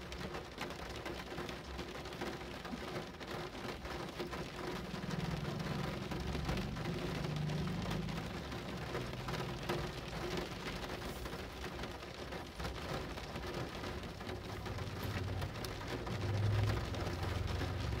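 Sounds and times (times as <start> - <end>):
rain drops hitting a surface: 0.0 - 18.0
low rumble: 4.8 - 11.1.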